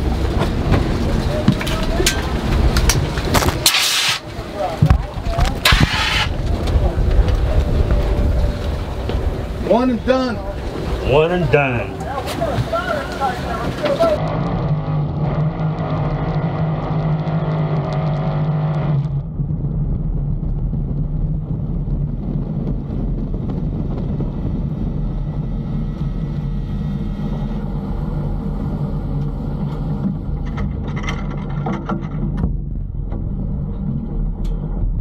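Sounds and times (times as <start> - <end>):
fire burning: 0.0 - 35.0
boat engine running hard: 6.3 - 16.9, 22.4 - 33.5.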